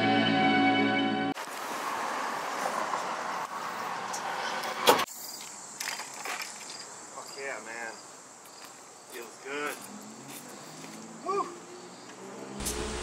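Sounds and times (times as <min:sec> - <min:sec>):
road traffic: 0:01.3 - 0:13.0
high insect drone: 0:05.1 - 0:13.0.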